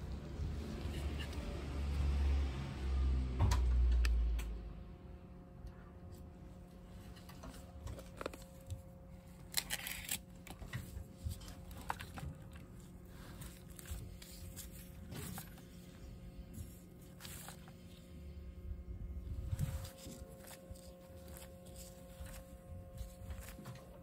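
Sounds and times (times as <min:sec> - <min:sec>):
handling scrapes and clicks: 0:07.0 - 0:18.4, 0:19.4 - 0:24.0.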